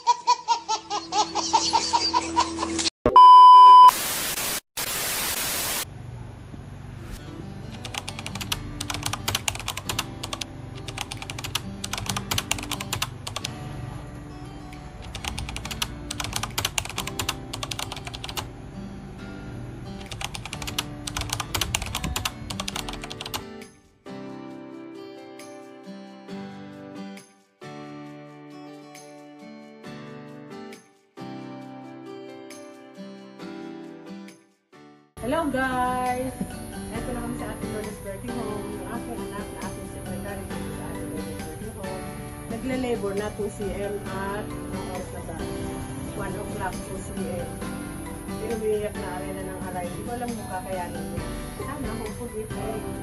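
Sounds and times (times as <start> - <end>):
baby laughing: 0.0 - 2.9
short beep: 3.1 - 4.0
loud burst of static: 3.8 - 5.9
music with clicking beat: 7.7 - 13.6, 14.6 - 18.5, 20.0 - 23.7.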